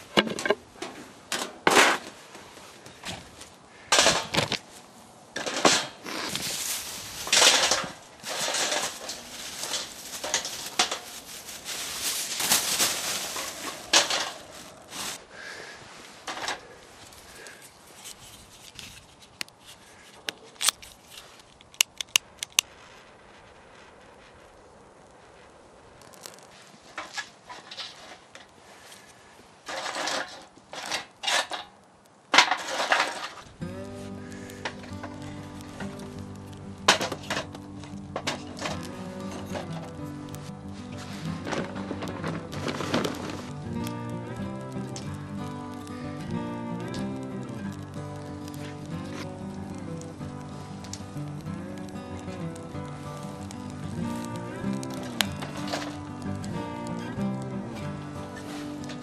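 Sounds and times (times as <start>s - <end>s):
twigs rustling and snapping: 0.0s - 22.8s, 25.9s - 59.0s
pine cones clattering on steel: 3.7s - 4.6s, 5.4s - 15.2s, 16.2s - 22.6s, 26.1s - 59.0s
bag rustling: 5.5s - 22.1s, 32.5s - 43.7s
sharp clicks: 21.5s - 22.8s
background music: 33.6s - 59.0s.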